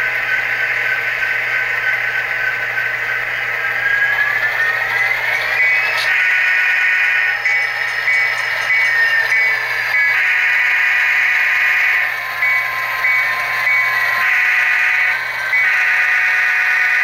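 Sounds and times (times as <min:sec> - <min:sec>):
diesel locomotive bell ringing: 0:00.0 - 0:17.0
locomotive horn blast: 0:06.1 - 0:07.5, 0:10.0 - 0:17.0.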